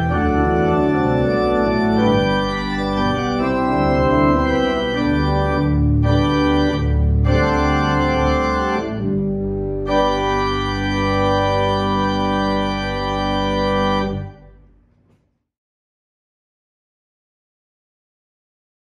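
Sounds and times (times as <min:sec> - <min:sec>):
pipe organ playing chords: 0:00.0 - 0:14.6.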